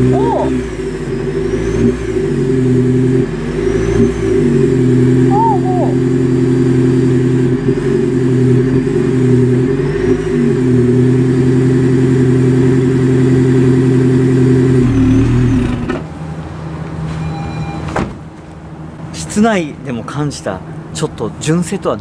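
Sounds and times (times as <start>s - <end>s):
car exhaust at raised revs: 0.0s - 16.1s.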